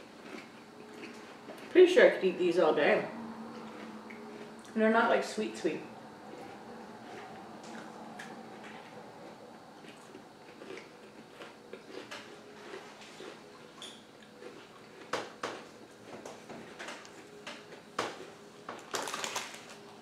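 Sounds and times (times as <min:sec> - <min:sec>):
soft eating mouth sounds: 0:00.0 - 0:01.8, 0:03.3 - 0:04.8, 0:06.1 - 0:15.1
crisp snaps: 0:18.8 - 0:19.9.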